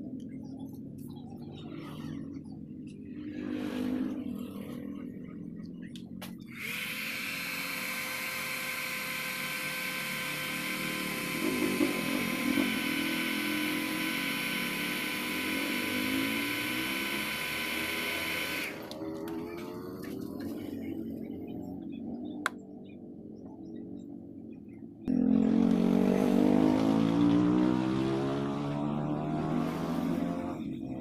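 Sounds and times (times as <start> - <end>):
hair dryer running: 6.5 - 19.0.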